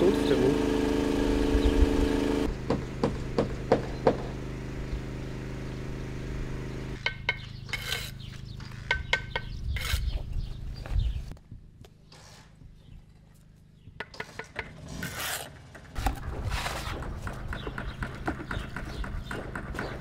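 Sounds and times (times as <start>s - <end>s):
machine hum: 0.0s - 7.7s.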